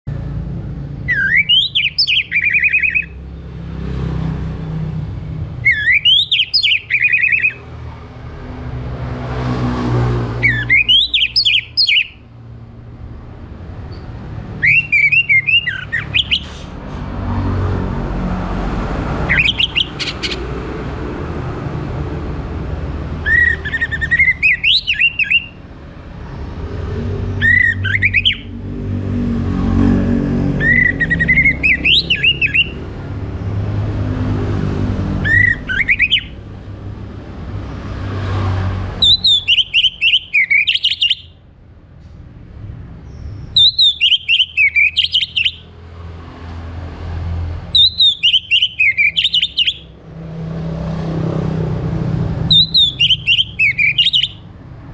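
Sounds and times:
thrush singing whistled phrases: 1.0s - 3.2s, 5.6s - 7.6s, 10.4s - 12.2s, 14.5s - 16.8s, 19.3s - 20.4s, 23.2s - 25.6s, 27.4s - 28.5s, 30.6s - 32.8s, 35.2s - 36.4s, 39.0s - 41.4s, 43.5s - 45.7s, 47.7s - 49.9s, 52.5s - 54.5s.

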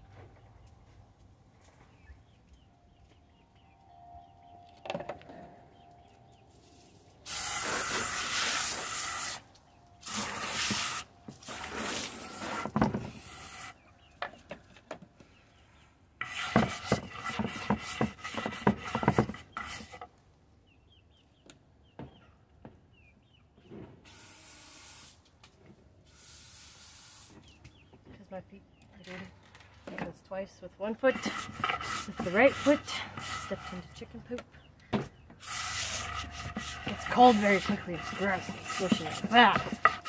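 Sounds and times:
water spraying from hose: 7.3s - 9.4s, 10.0s - 13.7s, 26.2s - 27.3s, 35.4s - 40.0s
scrub brush rasping in dish: 31.0s - 34.1s, 35.4s - 40.0s.

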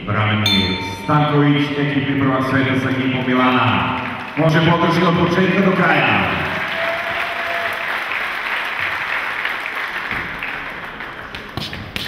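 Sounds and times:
crowd applauding: 2.6s - 11.6s.

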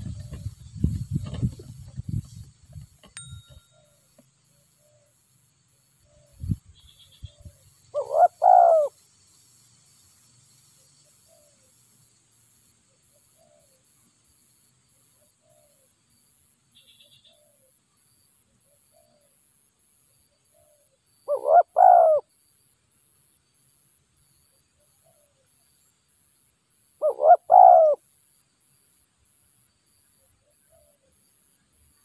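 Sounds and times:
doves cooing: 0.0s - 1.7s, 7.3s - 9.0s, 20.6s - 22.3s, 27.0s - 28.0s.

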